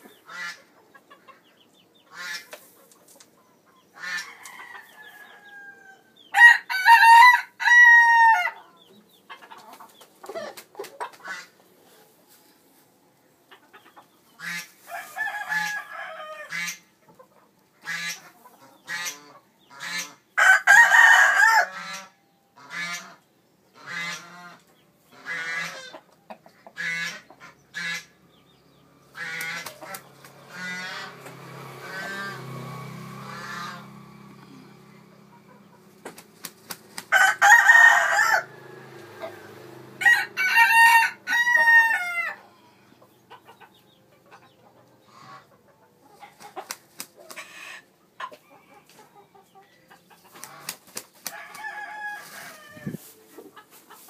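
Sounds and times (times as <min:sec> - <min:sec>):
rooster clucking: 0:00.0 - 0:11.6, 0:13.4 - 0:23.2, 0:23.8 - 0:28.2, 0:29.1 - 0:54.0
rooster crowing: 0:04.2 - 0:08.6, 0:14.9 - 0:16.7, 0:20.4 - 0:21.9, 0:37.1 - 0:42.5, 0:51.3 - 0:53.1.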